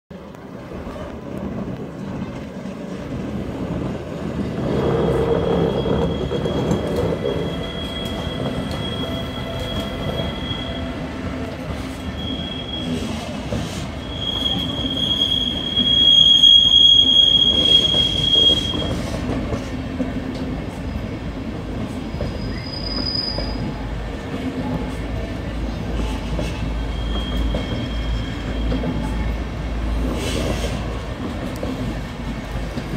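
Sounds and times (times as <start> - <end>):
train running gear rumbling: 0.1 - 32.9
train wheels squealing: 4.7 - 19.4, 21.9 - 23.9, 26.0 - 29.3.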